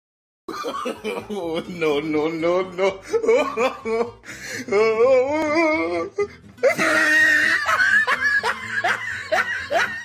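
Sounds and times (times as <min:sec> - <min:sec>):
background music: 0:00.5 - 0:10.0
child laughing: 0:06.6 - 0:10.0.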